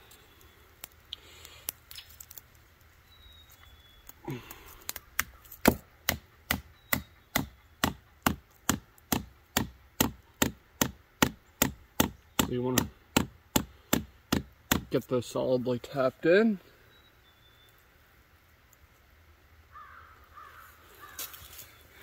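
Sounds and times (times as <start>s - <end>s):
hatchet hammering into wood: 5.2s - 15.0s.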